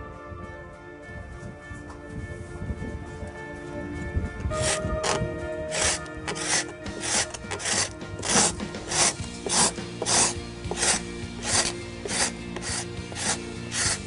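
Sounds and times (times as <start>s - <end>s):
background music: 0.0s - 14.0s
hand tool scraping paint off wood: 4.6s - 14.0s.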